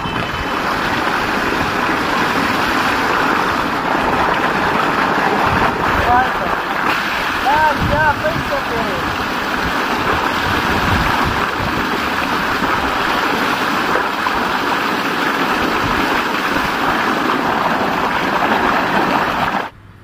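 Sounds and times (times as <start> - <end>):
water gushing and splashing: 0.0 - 19.7.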